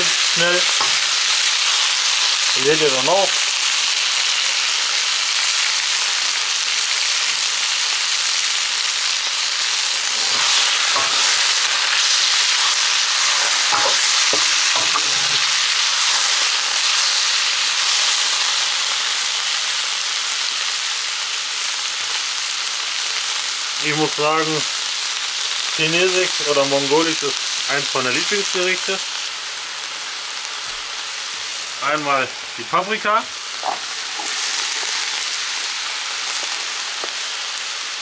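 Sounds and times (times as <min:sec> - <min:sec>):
meat sizzling in hot oil: 0:00.0 - 0:38.0
metal ladle scraping wok: 0:10.0 - 0:15.6.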